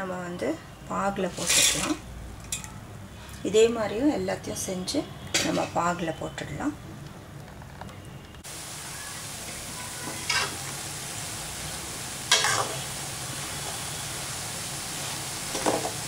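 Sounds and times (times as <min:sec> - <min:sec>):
batter sizzling in hot oil: 0:08.4 - 0:16.0.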